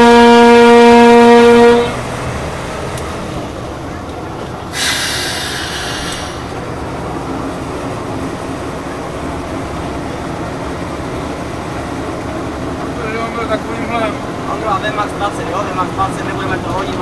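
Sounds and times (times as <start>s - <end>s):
train rumbling: 0.0s - 17.0s
loud hissing: 4.6s - 6.9s.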